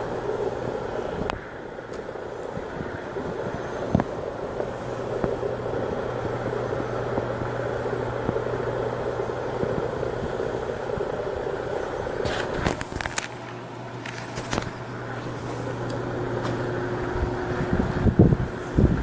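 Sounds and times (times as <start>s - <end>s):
electrical buzzing rush: 0.0s - 19.0s
electrical crackle: 0.0s - 19.0s
low constant hum: 0.0s - 19.0s.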